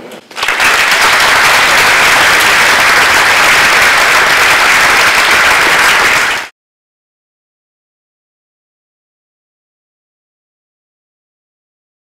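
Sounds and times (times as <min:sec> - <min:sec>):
audience applauding: 0:00.3 - 0:06.5.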